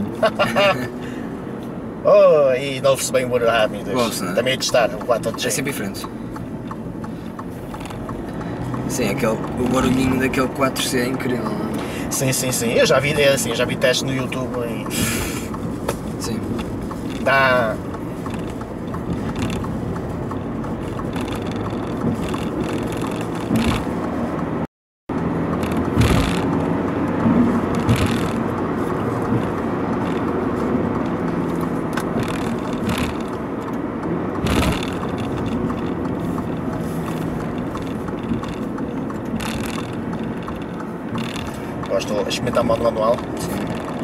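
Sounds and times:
car engine hum: 0.0s - 44.0s
road noise: 0.0s - 44.0s
short thumps: 14.3s - 24.2s, 25.5s - 30.4s, 34.4s - 41.9s.

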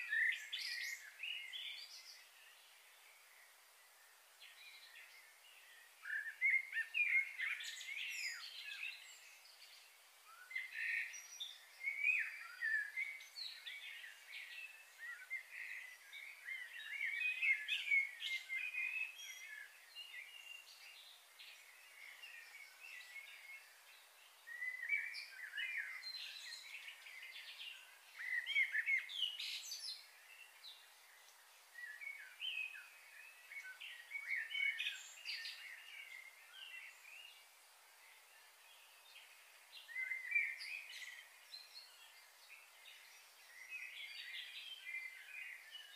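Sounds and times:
birds chirping and calling: 10.4s - 37.4s.

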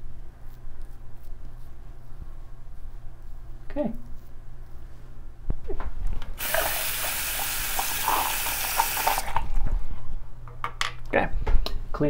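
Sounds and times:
tap running into sink: 6.4s - 9.4s.

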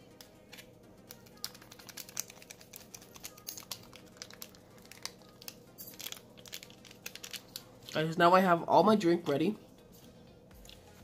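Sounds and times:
plastic packets crinkling: 1.4s - 8.1s.

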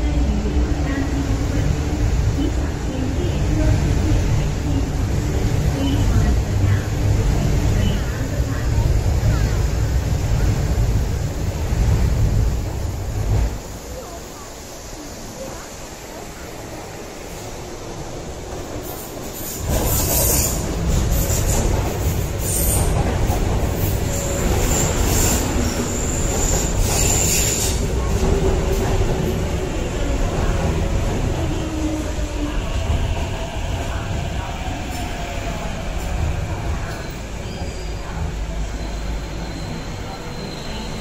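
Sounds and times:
train wheels rumbling on rail: 0.0s - 41.0s
high wheel squeal: 38.7s - 41.0s.

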